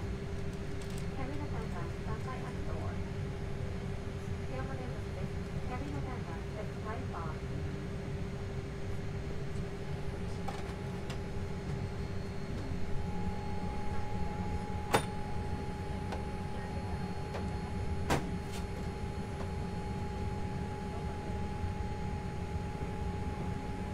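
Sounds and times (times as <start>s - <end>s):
aircraft cabin air system hum: 0.0s - 23.9s.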